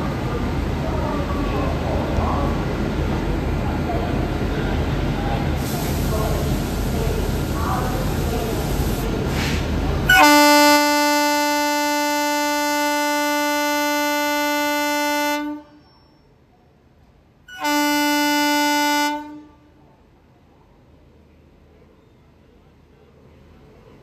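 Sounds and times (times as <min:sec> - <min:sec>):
locomotive horn blasts: 0:10.1 - 0:15.9, 0:17.5 - 0:19.7.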